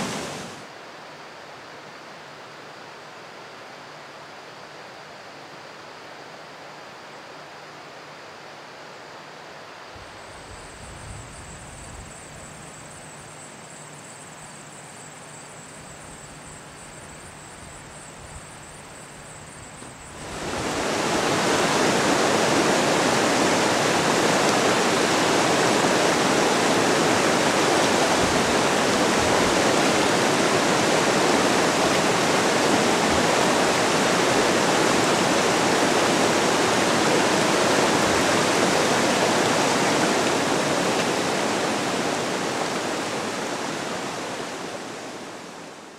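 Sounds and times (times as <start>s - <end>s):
rushing river water: 0.0s - 0.8s, 18.8s - 45.9s.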